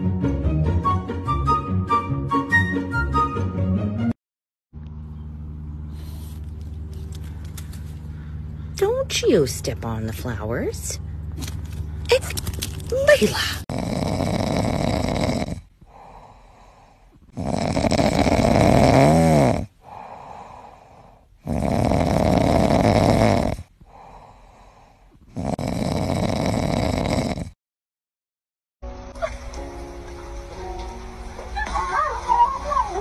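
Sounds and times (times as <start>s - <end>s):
dog snoring: 13.7s - 27.6s.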